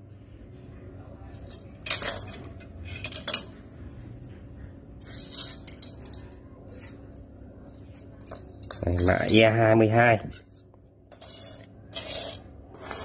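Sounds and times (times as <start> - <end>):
knives clinking and scraping: 1.4 - 3.5, 5.0 - 7.2, 7.8 - 9.6, 10.2 - 13.0.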